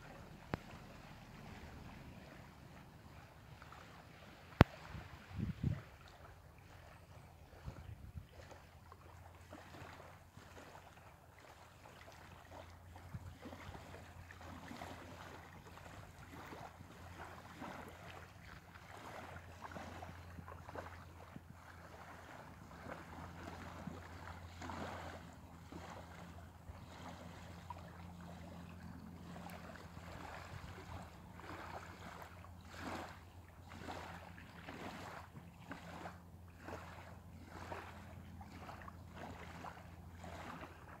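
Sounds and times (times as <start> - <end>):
small waves lapping on sand: 0.0 - 41.0
steady low hum: 0.0 - 41.0
wind on microphone: 4.4 - 6.8, 7.4 - 8.6.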